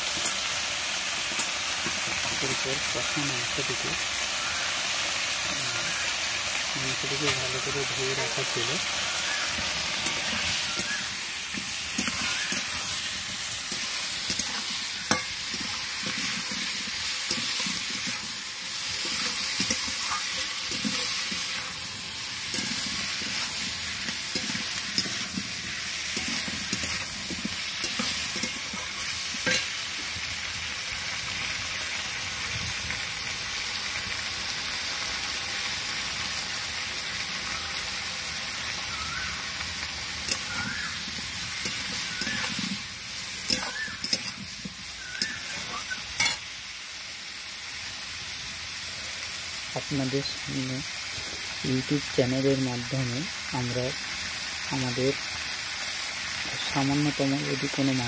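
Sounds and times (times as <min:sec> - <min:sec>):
vegetables sizzling in hot oil: 0:00.0 - 0:58.0
metal spatula scraping pan: 0:08.4 - 0:29.8, 0:41.5 - 0:46.5.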